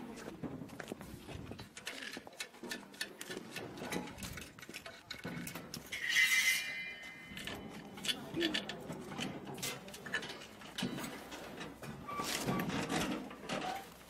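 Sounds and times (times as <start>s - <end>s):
metal parts clinking: 3.9s - 8.9s
brief metal screech: 6.0s - 7.0s.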